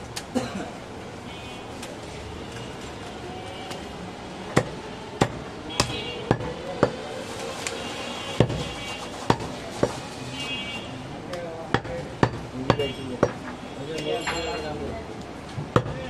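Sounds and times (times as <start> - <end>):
cleaver chopping meat and bone: 4.5 - 7.0, 8.4 - 8.7, 11.7 - 13.4, 15.7 - 16.0.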